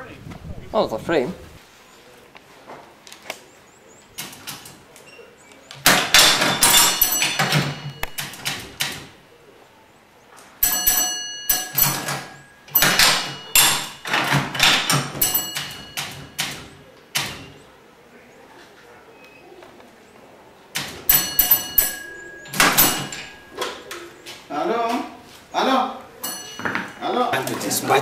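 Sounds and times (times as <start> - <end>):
metallic clacks and rattles: 5.8 - 9.2, 10.6 - 17.6, 20.8 - 24.0
metal clang with ring: 5.9 - 8.8, 10.6 - 17.6, 21.1 - 24.1, 26.2 - 27.1.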